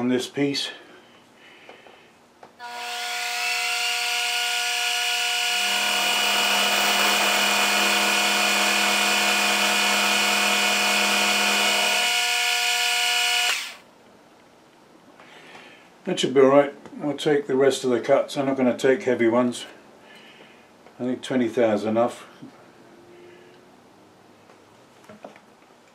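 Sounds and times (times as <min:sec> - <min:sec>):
end mill cutting metal hum: 0:02.6 - 0:13.8
milling spindle whine: 0:02.7 - 0:13.8.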